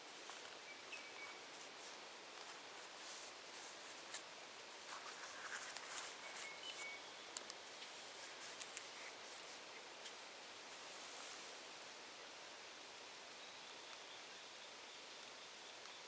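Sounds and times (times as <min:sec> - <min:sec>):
faint steady hiss: 0:00.0 - 0:16.0
scratchy rustles: 0:00.1 - 0:07.0, 0:07.6 - 0:11.6
faint high bird calls: 0:00.5 - 0:01.7, 0:05.3 - 0:07.4.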